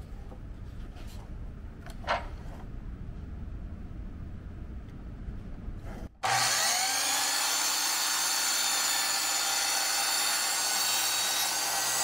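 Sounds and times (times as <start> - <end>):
miter saw motor whining: 6.2 - 12.0.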